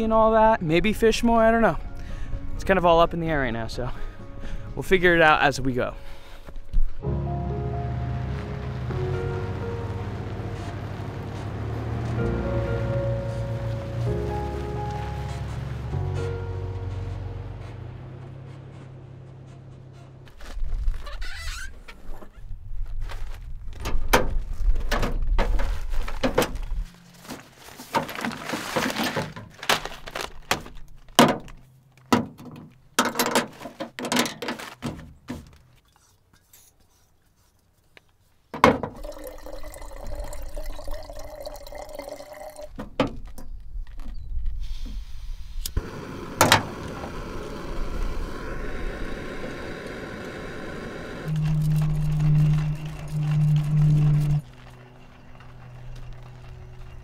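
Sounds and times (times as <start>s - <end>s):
gas stove hissing: 44.7s - 53.2s.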